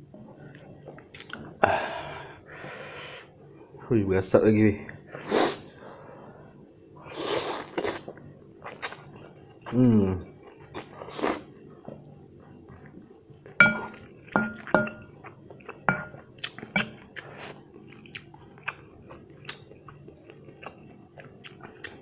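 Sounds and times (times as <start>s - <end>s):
wooden spoon knocking glass bowl: 13.6s - 15.0s, 15.9s - 16.2s
chewing noodles: 14.0s - 22.0s.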